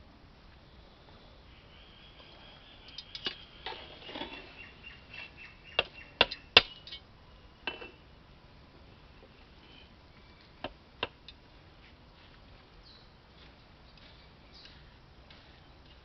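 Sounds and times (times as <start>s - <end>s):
metal spatula scraping pot: 3.0s - 4.6s.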